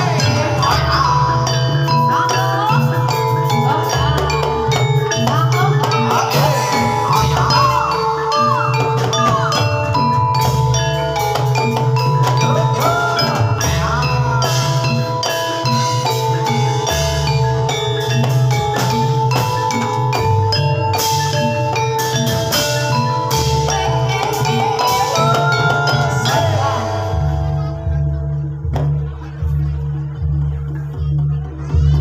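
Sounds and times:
sliding high melody: 0.0s - 28.6s
metallophones ringing: 0.0s - 29.5s
repeating drum pattern: 0.0s - 32.0s.

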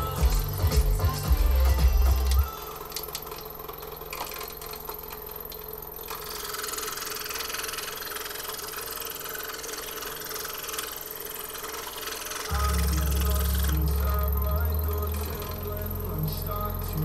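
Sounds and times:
scroll saw cutting wood: 6.1s - 12.6s.

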